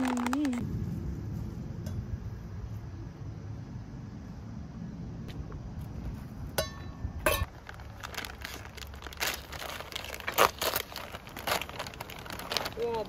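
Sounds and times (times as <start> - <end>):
plastic packet crinkling: 0.0 - 0.6, 7.5 - 13.0.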